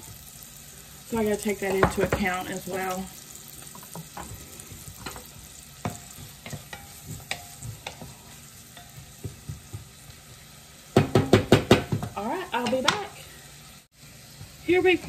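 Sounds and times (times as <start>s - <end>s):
onion and garlic sizzling: 0.0s - 15.0s
wooden spatula scraping a pot: 1.6s - 10.5s.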